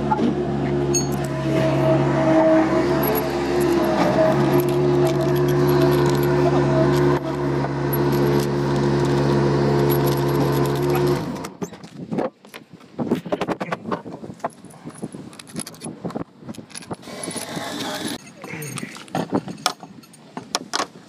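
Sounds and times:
loud machine hum: 0.0 - 11.6.

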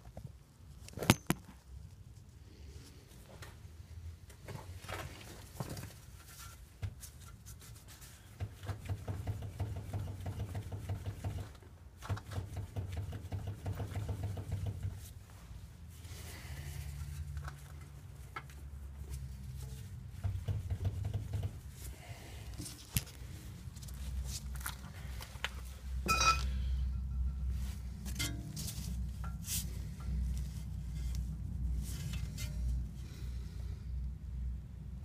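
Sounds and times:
glove rubbing on metal: 12.3 - 25.2, 27.5 - 33.0.

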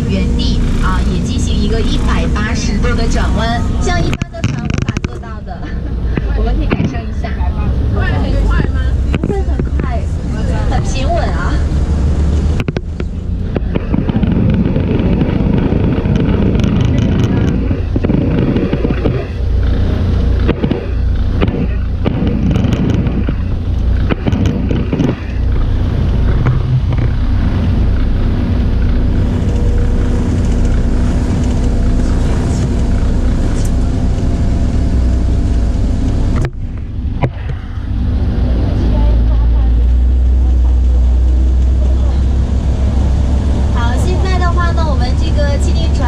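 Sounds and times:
hovercraft engine and propellers: 0.0 - 46.0.

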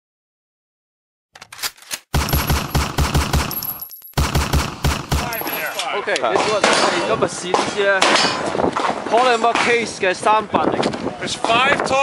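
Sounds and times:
automatic gunfire: 2.1 - 5.7.

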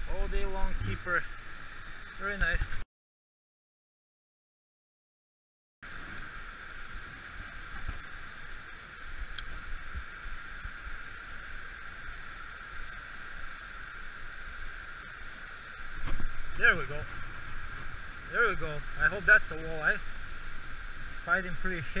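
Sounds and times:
river current rushing: 5.8 - 22.0.

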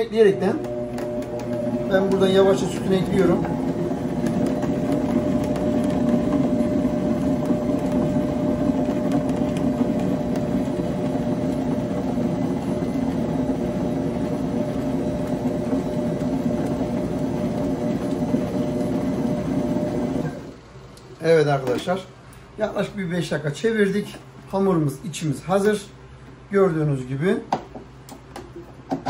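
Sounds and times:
stand mixer running: 0.0 - 20.6.

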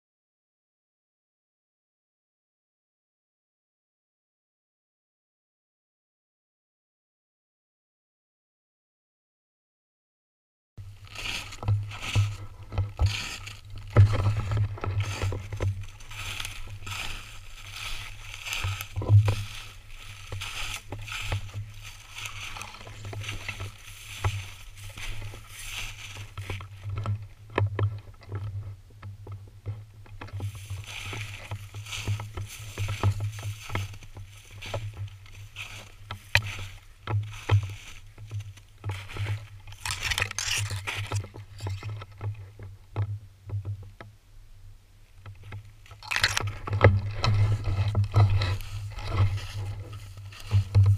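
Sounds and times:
brush rustling against clothing: 10.8 - 27.0, 30.4 - 41.5, 46.4 - 50.9
footsteps crunching through snow: 10.8 - 27.3, 30.2 - 42.0, 45.9 - 50.9.

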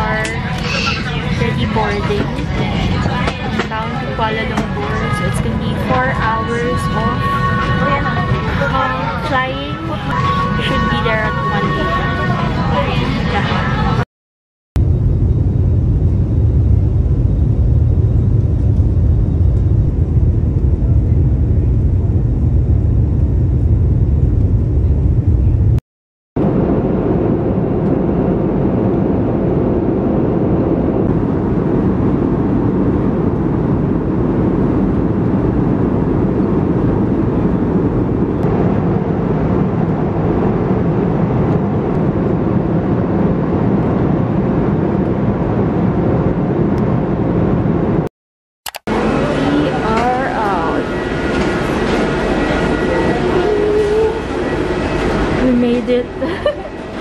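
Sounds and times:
airliner cabin roar: 0.0 - 14.0, 14.8 - 25.8, 26.4 - 48.1, 48.7 - 57.0.

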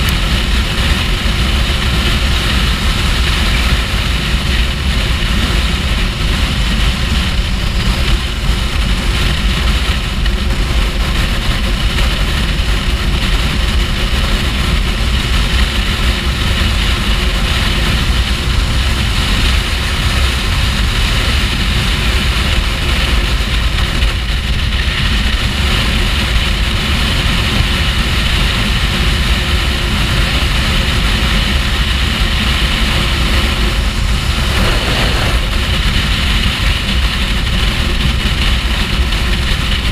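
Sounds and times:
wind rush on microphone: 0.0 - 39.9
motorcycle engine cruising: 29.9 - 39.9.

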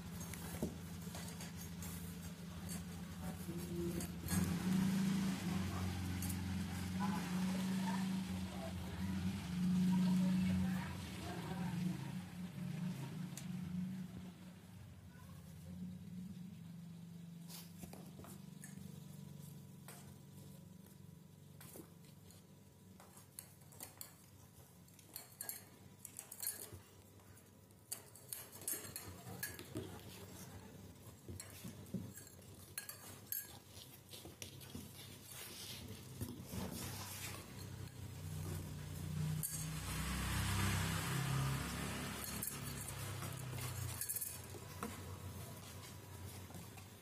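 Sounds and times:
kittens tapping and clinking: 0.0 - 8.2, 17.8 - 47.0.

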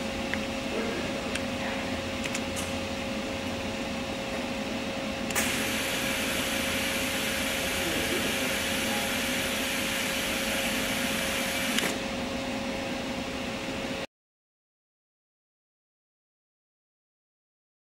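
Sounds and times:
machine hum with constant tone: 0.0 - 14.1.

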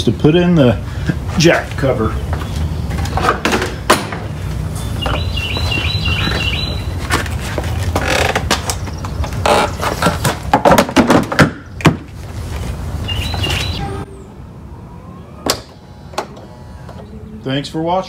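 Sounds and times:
bird chirping: 2.0 - 3.4, 4.2 - 7.0, 13.0 - 16.2
handling knocks and rustles: 7.0 - 12.8.

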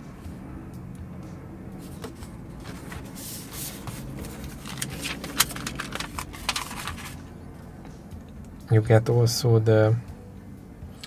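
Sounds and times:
paper rustling: 1.8 - 7.2
sharp paper crackles: 2.0 - 7.2.

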